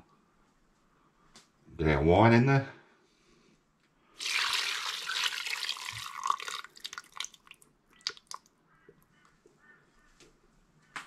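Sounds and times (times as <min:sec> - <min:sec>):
wine pouring and splashing: 0:04.2 - 0:08.5
liquid dripping: 0:04.2 - 0:08.6.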